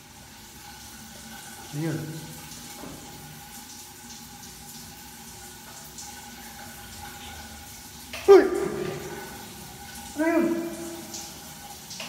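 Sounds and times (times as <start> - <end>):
shower water running: 0.0 - 12.0.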